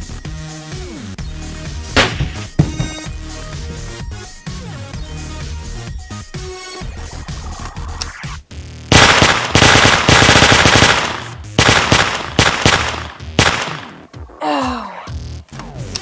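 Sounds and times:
synthetic machine-gun bursts: 8.9 - 13.8.

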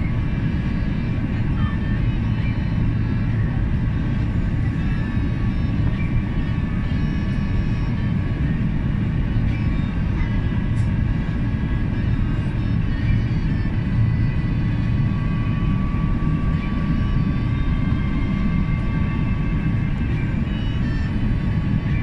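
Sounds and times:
airliner cabin engine noise: 0.0 - 22.0.

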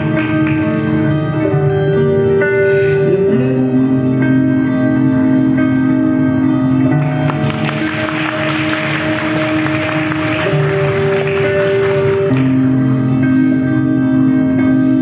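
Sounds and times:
song with long held notes: 0.0 - 15.0.

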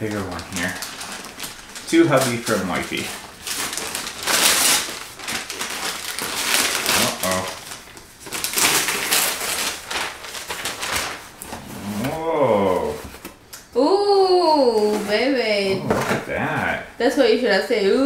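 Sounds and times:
wrapping paper ripping: 0.0 - 13.2
paper crinkling and rustling: 0.0 - 13.4.

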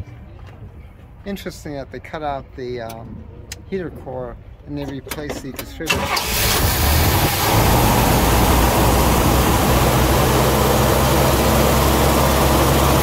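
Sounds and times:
car engine idling: 6.0 - 13.0.

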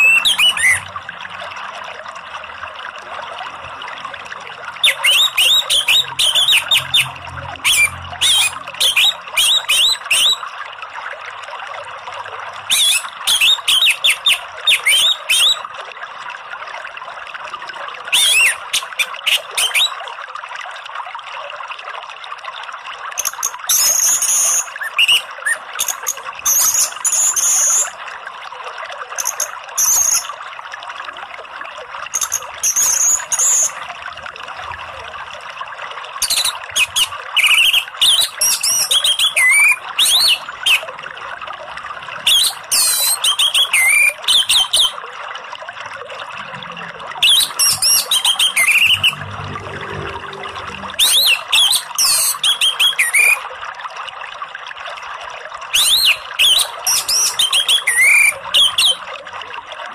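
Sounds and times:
flowing water rushing: 0.0 - 59.9
thrush singing sharp notes: 47.4 - 52.0.

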